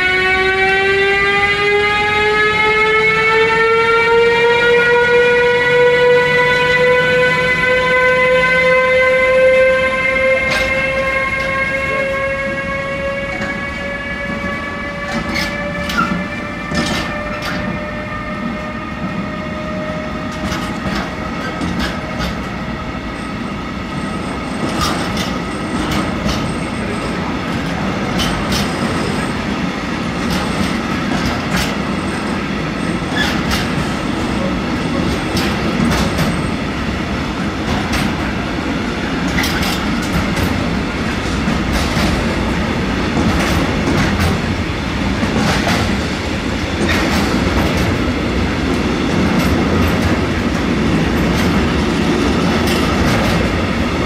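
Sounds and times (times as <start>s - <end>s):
train wheels clacking over rail joints: 10.2s - 19.3s, 20.2s - 22.6s, 24.4s - 54.0s.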